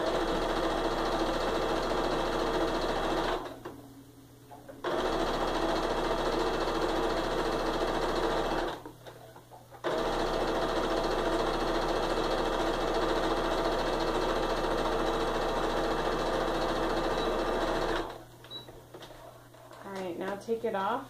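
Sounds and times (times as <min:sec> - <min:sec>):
sewing machine running: 0:00.0 - 0:03.7, 0:04.8 - 0:08.8, 0:09.8 - 0:18.2.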